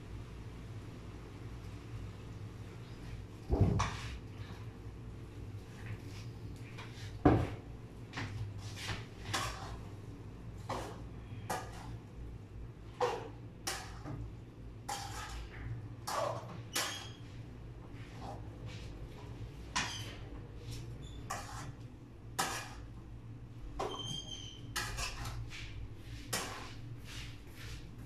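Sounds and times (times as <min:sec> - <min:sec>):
spatula scraping a wok: 0:08.6 - 0:09.9, 0:10.6 - 0:12.1, 0:14.8 - 0:17.2, 0:20.0 - 0:22.9, 0:24.0 - 0:27.8.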